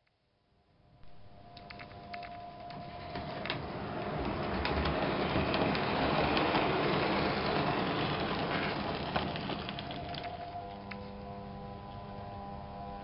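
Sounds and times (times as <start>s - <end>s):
model train rumbling on track: 1.6s - 10.9s.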